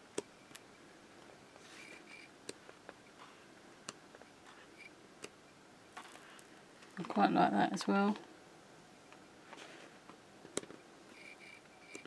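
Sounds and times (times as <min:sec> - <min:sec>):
soft paper rustle: 0:09.4 - 0:10.1.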